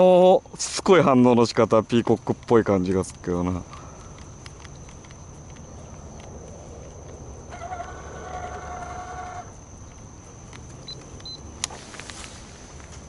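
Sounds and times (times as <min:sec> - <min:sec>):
low hum: 0:01.4 - 0:13.0
rooster crowing: 0:07.5 - 0:09.6.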